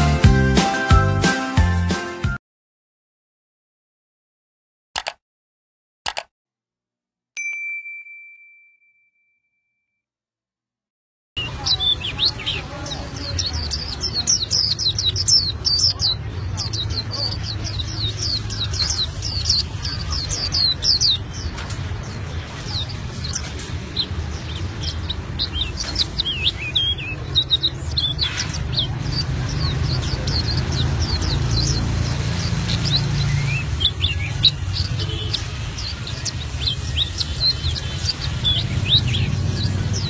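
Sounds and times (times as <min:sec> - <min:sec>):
bird singing rapid chirps: 0:11.4 - 0:40.0.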